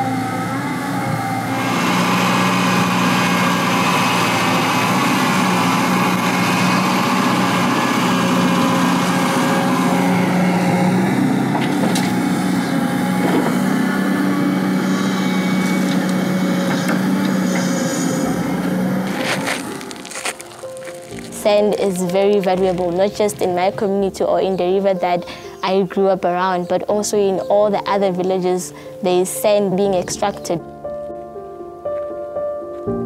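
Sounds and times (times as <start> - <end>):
excavator diesel engine running: 0.0 - 25.2.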